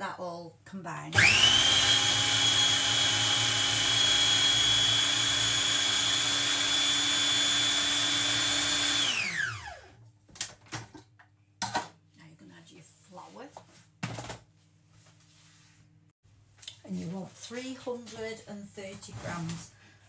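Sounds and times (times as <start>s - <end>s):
food processor motor whining: 1.1s - 10.0s.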